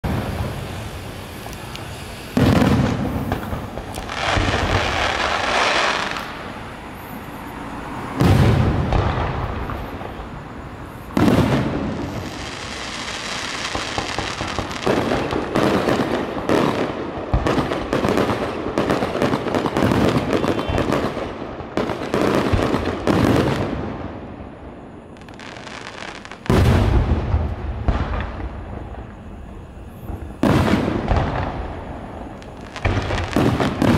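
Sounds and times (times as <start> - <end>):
fireworks booming: 0.0 - 33.9
fireworks crackling and popping: 0.0 - 33.9.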